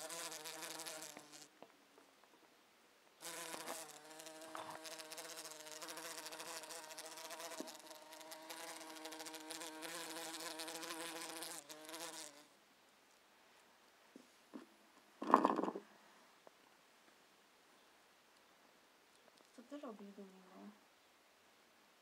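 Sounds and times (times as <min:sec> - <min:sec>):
bumblebee buzzing: 0:00.0 - 0:01.5, 0:03.2 - 0:12.5.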